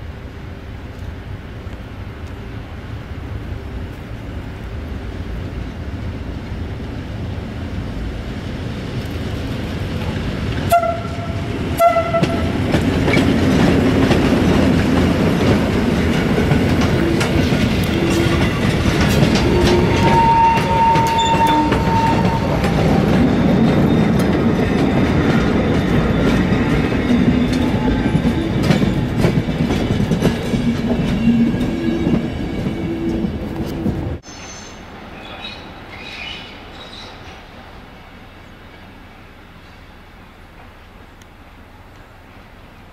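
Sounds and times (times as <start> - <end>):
train wheels clattering on rails: 8.9 - 34.2
train horn blasts: 10.6 - 12.6, 19.3 - 22.8.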